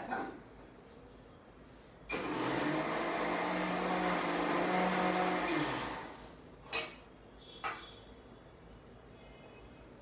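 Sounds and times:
electric mixer grinder running: 2.1 - 6.3.

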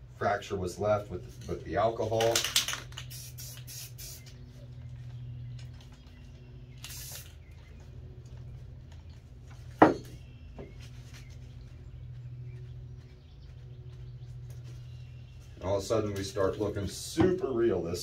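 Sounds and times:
steady low hum: 0.0 - 18.0
spray bottle hiss: 2.7 - 4.3, 6.8 - 7.4.

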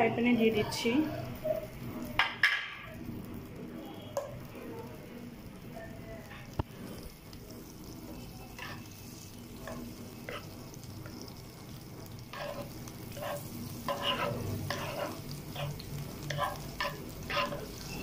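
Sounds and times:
butter sizzling in frying pan: 0.0 - 18.0
spatula scraping pan: 6.4 - 18.0.

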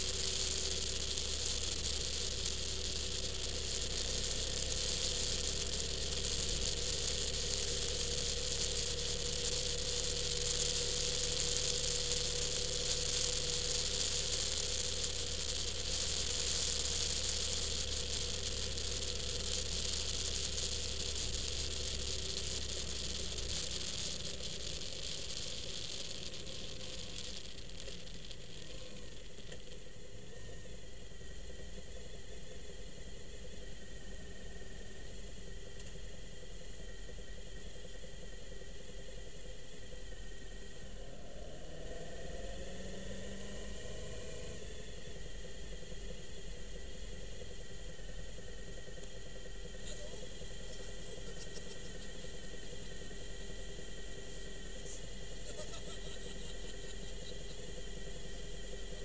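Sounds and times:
vehicle rattling: 0.0 - 30.2
vehicle engine hum: 0.0 - 59.0
road and wind noise: 39.9 - 49.7.

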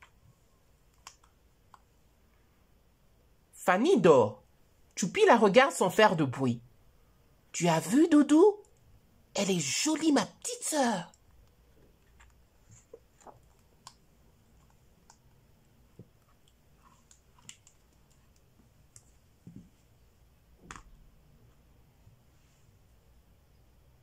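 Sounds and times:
book clicks and taps: 20.6 - 20.9.

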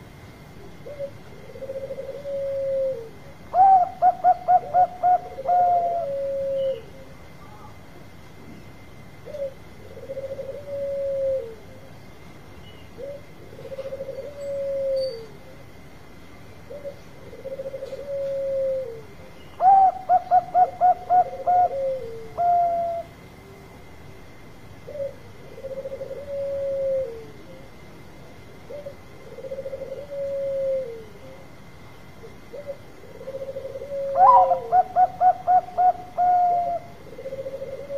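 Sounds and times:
dove cooing: 0.6 - 7.1, 9.2 - 11.9, 12.9 - 15.6, 16.6 - 23.2, 24.8 - 27.9, 28.6 - 31.5, 32.2 - 37.9.

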